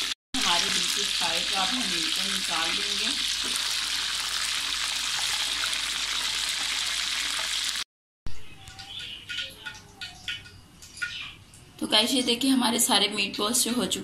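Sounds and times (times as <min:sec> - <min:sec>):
food sizzling in hot oil: 0:00.0 - 0:07.9.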